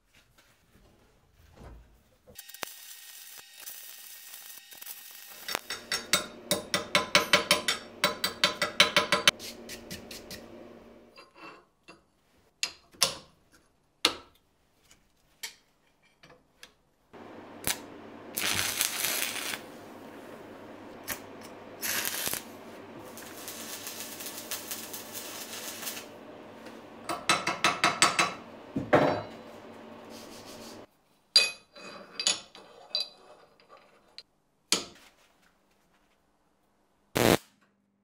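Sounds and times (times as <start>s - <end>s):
welding arc crackling hiss: 2.4s - 11.1s, 17.2s - 28.8s, 29.6s - 30.9s, 37.2s - 37.4s
steel parts clicking and tapping: 5.4s - 9.3s
low electrical hum: 5.4s - 11.1s, 17.2s - 30.9s.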